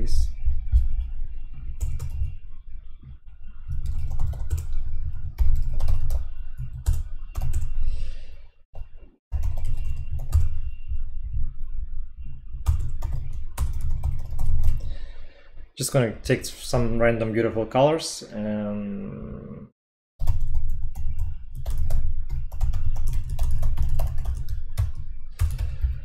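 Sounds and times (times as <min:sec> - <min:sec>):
typing on keyboard: 0:03.7 - 0:07.8, 0:09.3 - 0:10.6, 0:12.6 - 0:14.8, 0:20.2 - 0:26.0.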